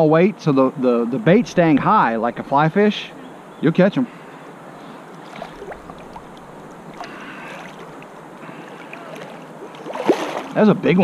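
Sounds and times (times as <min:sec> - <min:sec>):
fast-moving river water rushing: 0:04.6 - 0:11.0.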